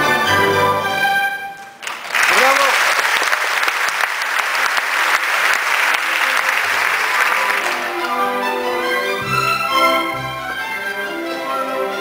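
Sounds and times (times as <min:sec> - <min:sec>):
orchestra playing: 0:00.0 - 0:01.8, 0:05.7 - 0:12.0
audience applauding: 0:01.8 - 0:08.6.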